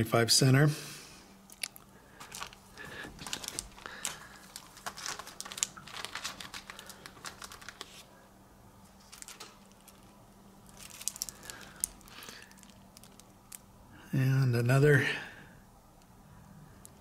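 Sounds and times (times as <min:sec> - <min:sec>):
plastic bags crinkling: 0:01.5 - 0:08.1, 0:08.9 - 0:13.7.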